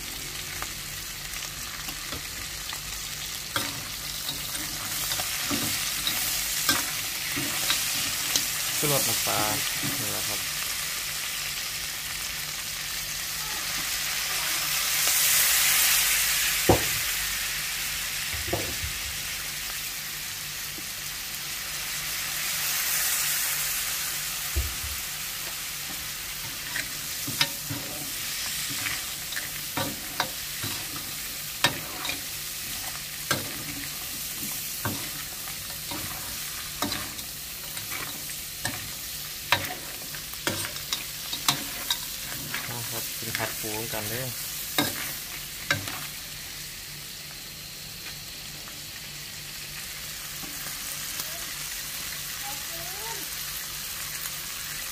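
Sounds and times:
food sizzling in a hot pan: 0.0 - 54.9
spatula scraping a pan: 25.9 - 44.1.

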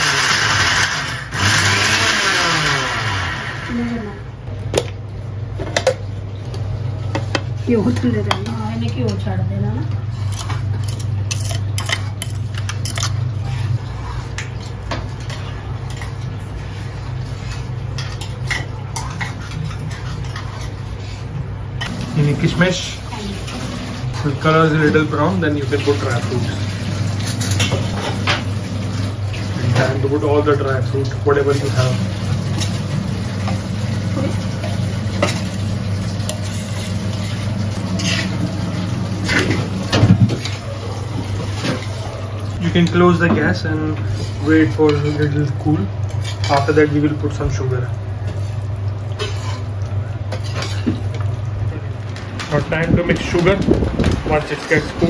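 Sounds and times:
ladle stirring in a pan: 9.9 - 22.4, 31.3 - 42.6, 44.0 - 52.2.

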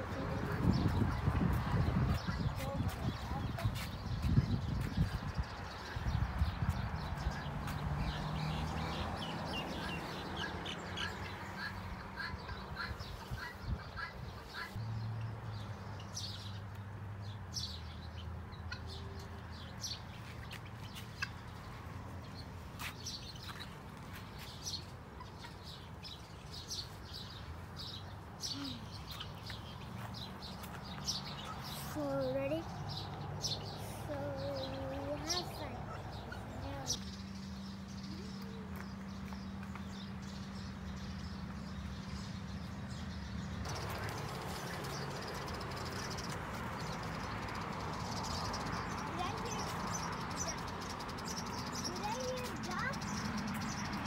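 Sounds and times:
guineafowl calling: 9.6 - 14.8.

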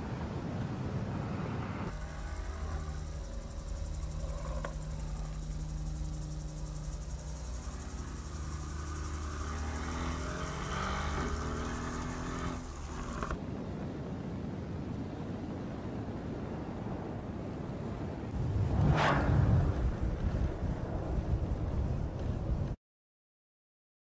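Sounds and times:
car engine accelerating: 1.9 - 13.4.

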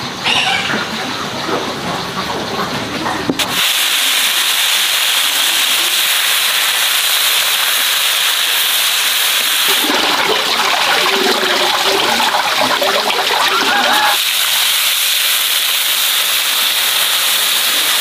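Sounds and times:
fish sizzling in hot oil: 3.4 - 9.9, 13.0 - 18.0
water splashing into metal basin: 4.8 - 18.0.

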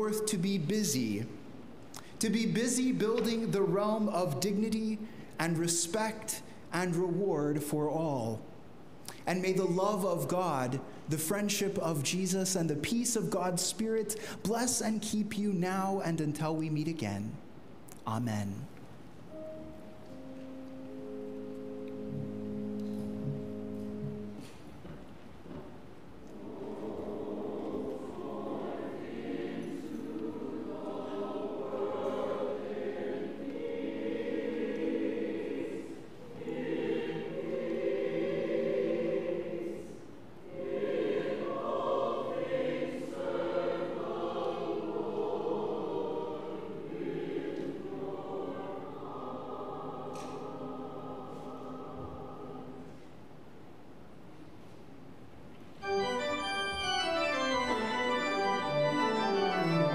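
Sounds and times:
church choir singing: 26.2 - 53.2, 55.8 - 59.9
organ: 55.8 - 59.9.

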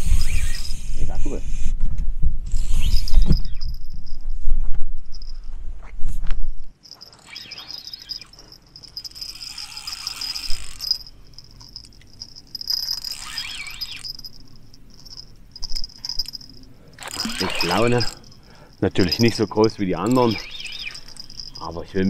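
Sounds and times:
rustling noise: 3.1 - 7.3
crickets chirring: 6.8 - 22.0.

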